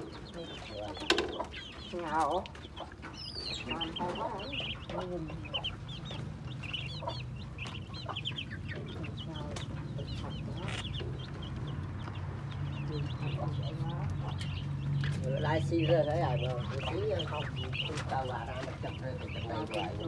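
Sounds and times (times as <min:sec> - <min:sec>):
ducklings peeping: 0:00.0 - 0:20.0.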